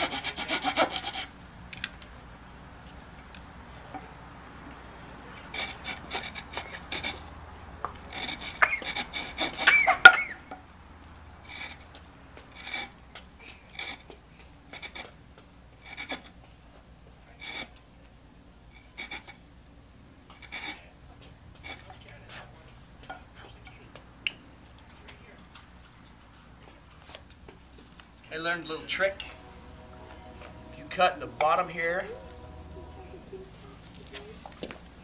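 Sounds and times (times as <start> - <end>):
blade rasping on wood: 0.0 - 1.4, 5.4 - 10.4, 11.4 - 13.0, 13.7 - 15.2, 15.8 - 16.4, 17.4 - 17.8, 18.8 - 19.4, 20.3 - 20.8.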